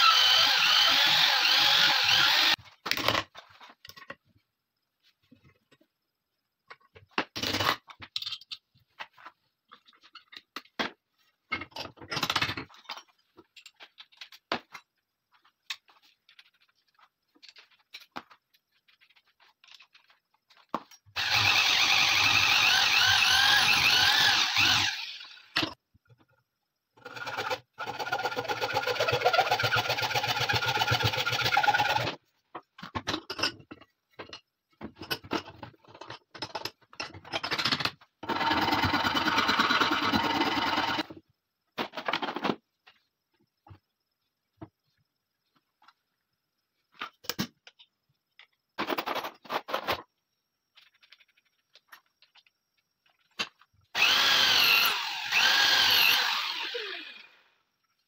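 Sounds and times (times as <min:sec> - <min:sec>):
electric power tool running: 0:00.0 - 0:02.6, 0:21.2 - 0:25.4, 0:54.0 - 0:57.4.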